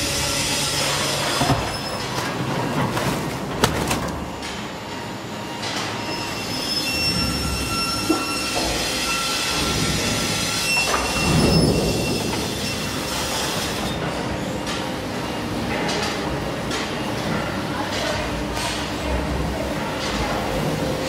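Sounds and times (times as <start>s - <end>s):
metallic squealing: 6.0s - 13.6s.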